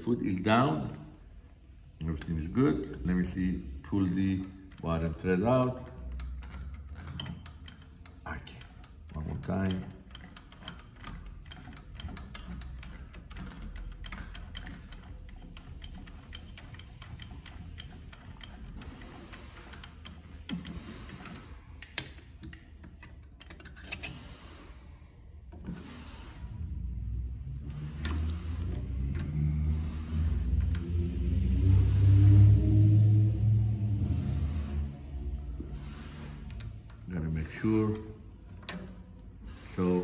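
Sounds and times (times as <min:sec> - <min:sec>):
sewing machine clicks and ticks: 0:02.2 - 0:24.4
low rumble: 0:29.1 - 0:36.6.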